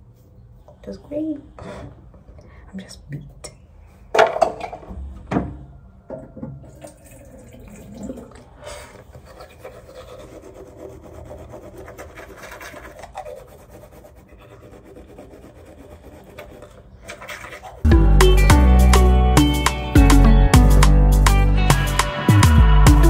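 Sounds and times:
toothbrush scrubbing teeth: 8.4s - 17.9s.

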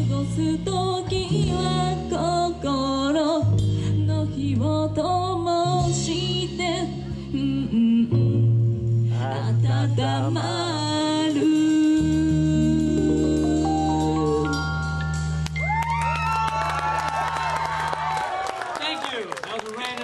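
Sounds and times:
woman singing: 0.0s - 14.7s
keyboard chords: 0.0s - 18.1s
electric guitar: 0.0s - 18.2s
bass: 0.0s - 20.0s.

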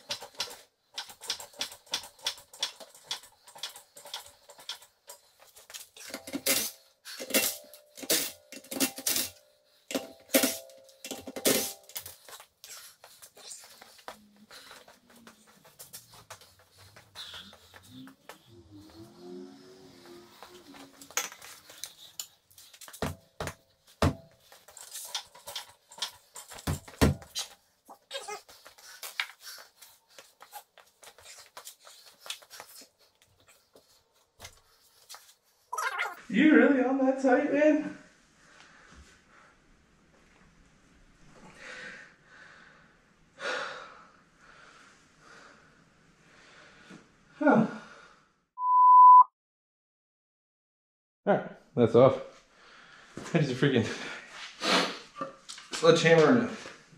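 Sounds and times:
man breathing hard: 41.4s - 47.0s.

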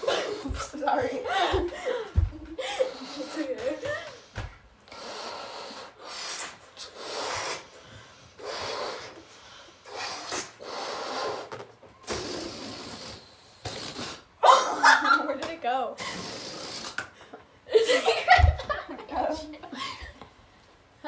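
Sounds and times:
person blowing up balloon: 2.6s - 14.7s, 16.0s - 17.2s.

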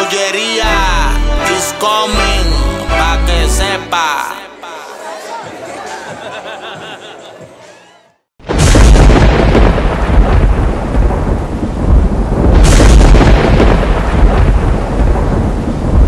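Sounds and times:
loud thunderclap: 8.4s - 16.0s.

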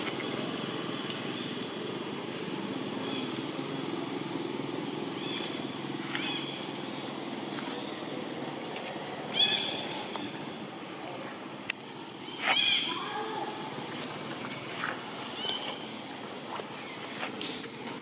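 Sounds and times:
steady low hum: 0.0s - 18.0s
high-pitched animal calls: 12.3s - 13.6s.

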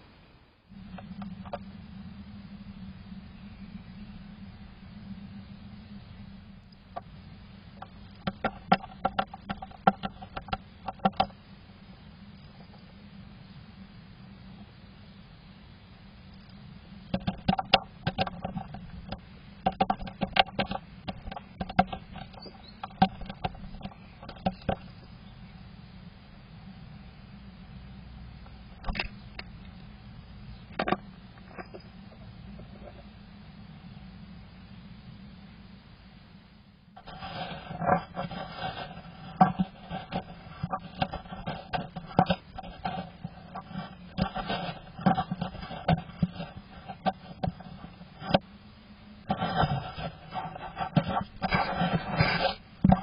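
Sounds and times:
bird tapping and scratching on wood: 7.8s - 11.4s, 17.1s - 24.9s, 37.0s - 48.4s, 49.3s - 53.0s.

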